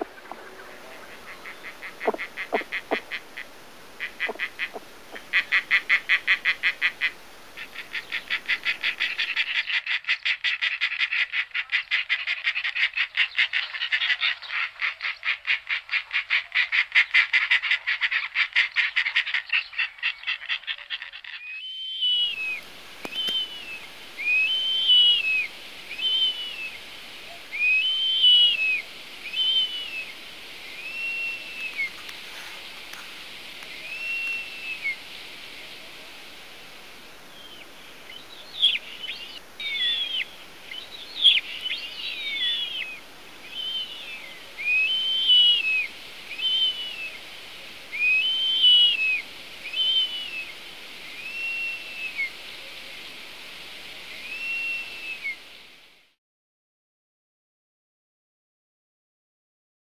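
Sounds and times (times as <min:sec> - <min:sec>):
short whistled animal calls: 0:07.8 - 0:30.1, 0:30.7 - 0:32.0, 0:33.8 - 0:35.0, 0:42.1 - 0:47.2, 0:47.9 - 0:50.5, 0:51.2 - 0:52.3, 0:54.2 - 0:55.4.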